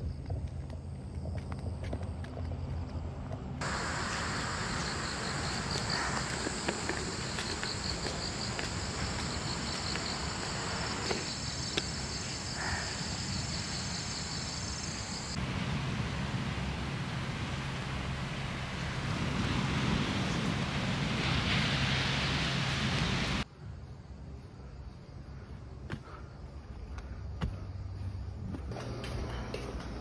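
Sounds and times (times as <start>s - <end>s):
high-pitched insect trill: 3.6s - 15.4s
rush of noise: 15.0s - 23.4s.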